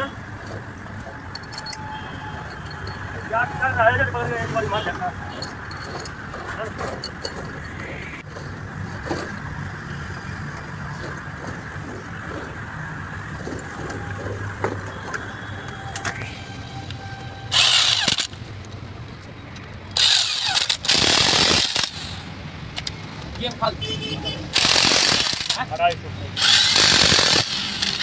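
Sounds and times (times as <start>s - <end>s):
impact wrench hammering bolts: 1.3s - 1.8s, 17.5s - 18.4s.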